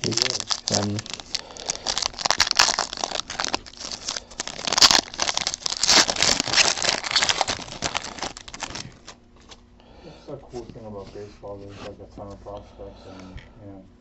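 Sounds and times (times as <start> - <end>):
foil wrapper crinkling: 0.0 - 9.6.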